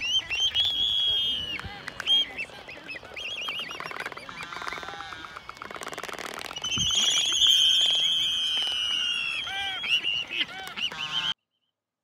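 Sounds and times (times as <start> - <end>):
albatrosses calling: 0.0 - 11.4.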